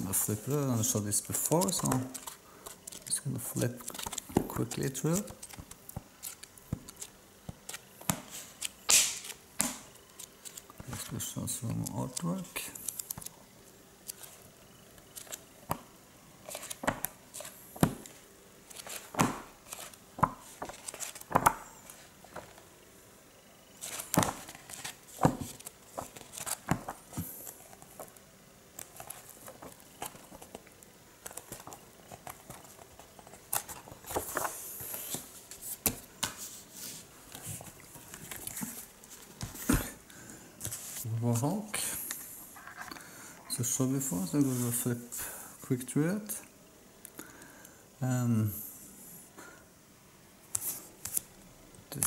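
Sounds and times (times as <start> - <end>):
comic book pages turning: 0.0 - 13.4, 15.0 - 15.4, 16.4 - 22.6, 23.8 - 28.2, 28.8 - 30.6, 31.2 - 39.9
pages riffling: 16.4 - 17.5, 18.6 - 22.5, 23.8 - 28.1.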